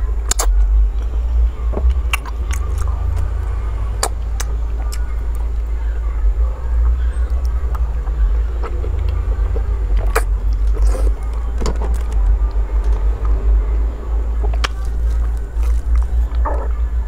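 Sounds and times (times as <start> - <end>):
steady low rumble: 0.0 - 17.0
sharp mouth clicks: 0.3 - 1.1, 8.6 - 11.4
wet sucking and chewing: 0.3 - 1.1, 1.7 - 5.5, 7.3 - 13.4, 14.4 - 16.7.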